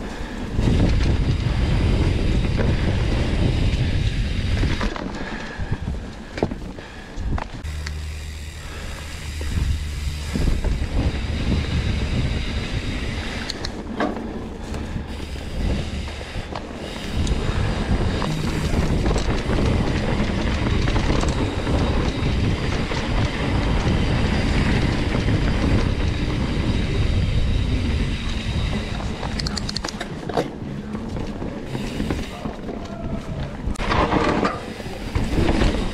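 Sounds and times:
bike frame and drivetrain rattle: 0.0s - 35.9s
bike tyre rumble on dirt: 0.0s - 35.9s
wind on microphone: 0.0s - 35.9s
sharp clicks: 13.4s - 13.8s, 29.2s - 30.1s.

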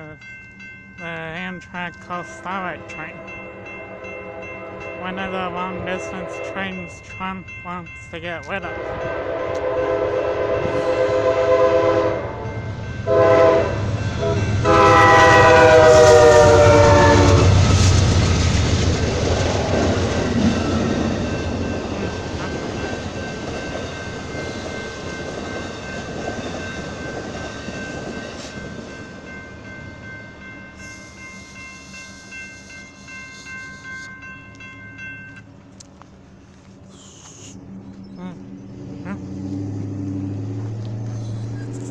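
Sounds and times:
crossing warning bell: 0.0s - 36.9s, 37.6s - 41.9s
train rumbling past: 0.0s - 41.9s
train horn blasts: 2.8s - 6.6s, 8.6s - 17.6s.

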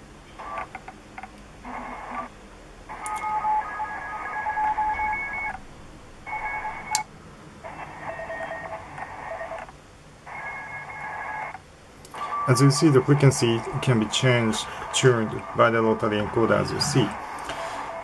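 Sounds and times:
radio band hiss: 1.6s - 2.3s, 2.9s - 5.5s, 7.6s - 18.0s
steady whistling tones: 12.2s - 18.0s.

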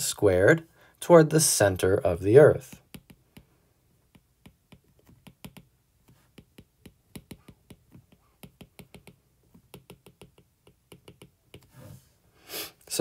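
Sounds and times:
stylus tapping on a tablet screen: 2.7s - 11.7s.

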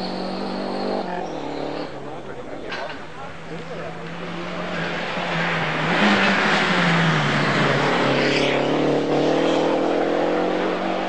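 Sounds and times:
rally car engine passing by: 3.3s - 11.0s.

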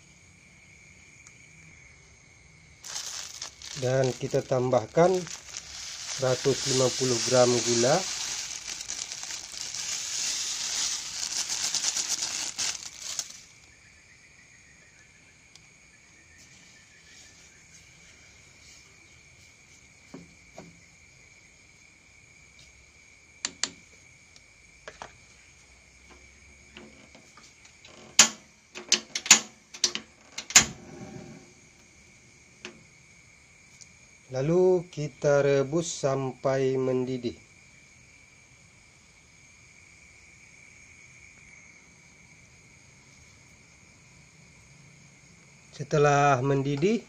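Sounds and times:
sugar pouring in a hissing stream: 2.8s - 13.6s
sharp clicks and knocks: 28.1s - 30.7s.

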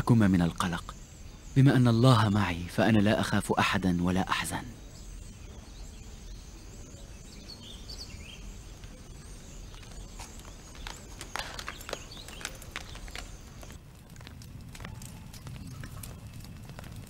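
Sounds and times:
faint bird chirps: 0.0s - 13.8s
outdoor ambience: 0.0s - 17.0s
sharp footsteps and clicks: 9.6s - 17.0s.

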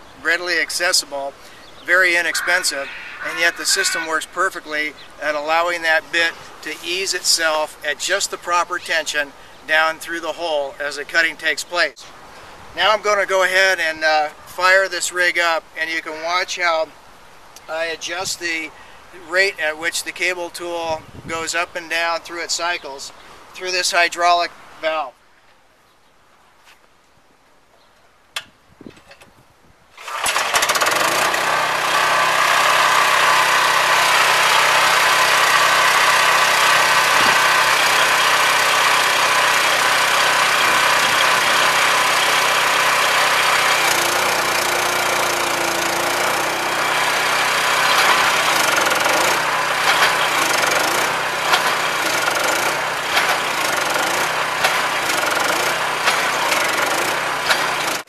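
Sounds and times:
drill rig knocking: 30.0s - 58.0s
single-cylinder engine running: 30.0s - 58.0s.

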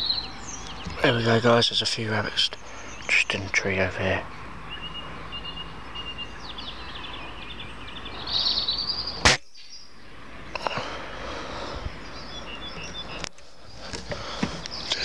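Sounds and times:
birds chirping: 0.0s - 15.0s
rifle shot: 9.2s - 9.5s.

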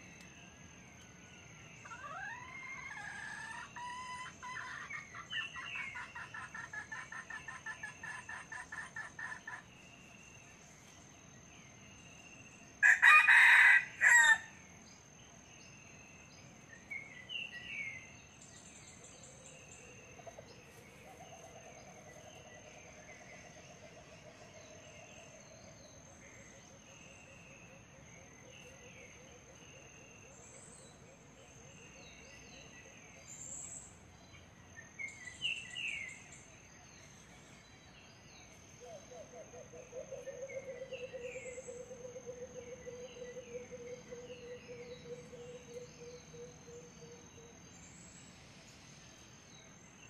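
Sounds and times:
rooster crowing: 12.8s - 14.6s.

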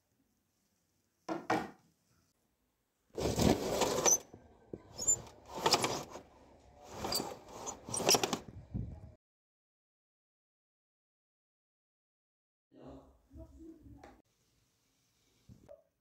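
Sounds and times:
curtains swishing and sliding: 3.2s - 4.2s, 5.0s - 6.2s, 6.9s - 8.4s
window frame squeaks: 3.3s - 4.3s, 4.9s - 6.2s, 7.0s - 8.4s.

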